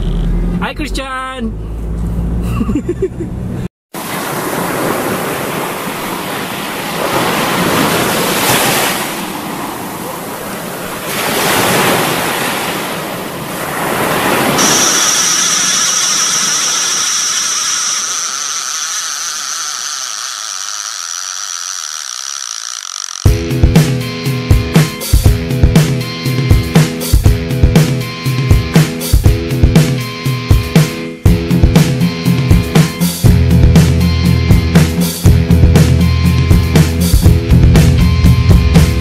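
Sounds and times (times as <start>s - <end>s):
wind: 0.0s - 23.3s
sea waves washing: 4.0s - 20.7s
high-pitched tone: 14.6s - 23.3s.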